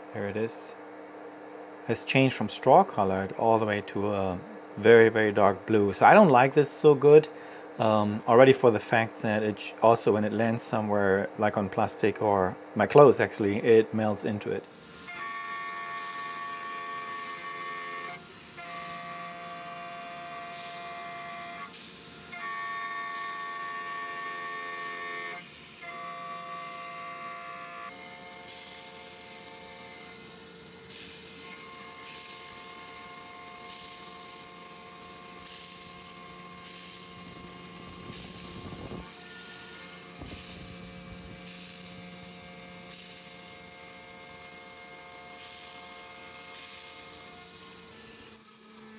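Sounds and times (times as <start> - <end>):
router spindle whining: 14.7 - 48.9.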